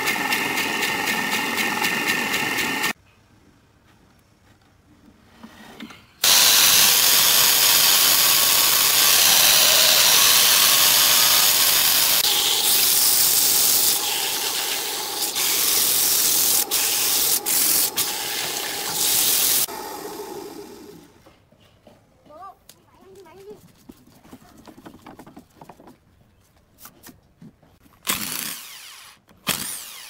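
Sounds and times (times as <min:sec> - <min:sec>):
sandpaper hissing on spinning wood: 0:06.2 - 0:20.8.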